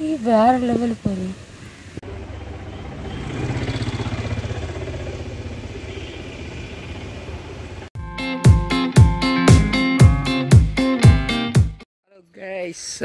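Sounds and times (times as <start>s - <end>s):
vehicle engine pulsing: 2.0s - 7.9s
plucked guitar music: 8.0s - 11.8s.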